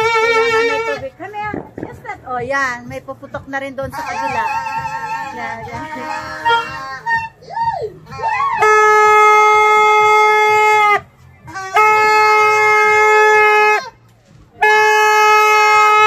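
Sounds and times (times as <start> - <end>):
party horn blasts: 0.0 - 1.9, 3.8 - 7.3, 8.2 - 14.0, 14.6 - 16.0.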